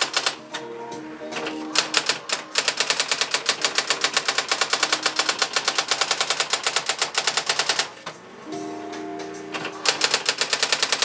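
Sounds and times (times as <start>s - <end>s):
electronic typewriter printing: 0.0s - 0.7s, 1.3s - 8.2s, 9.5s - 11.0s.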